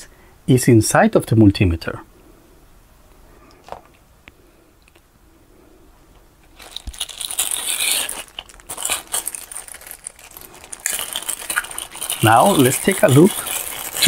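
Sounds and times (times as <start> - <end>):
plastic bag crinkling: 6.4 - 14.0.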